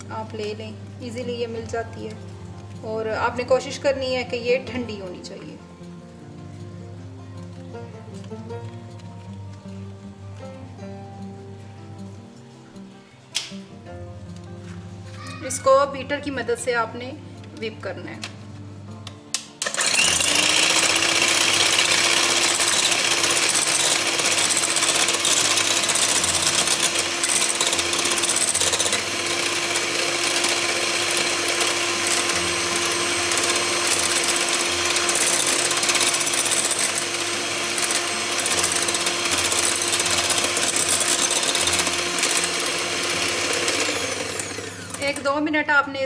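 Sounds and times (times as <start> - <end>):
electric hand mixer whipping cream: 19.6 - 45.3.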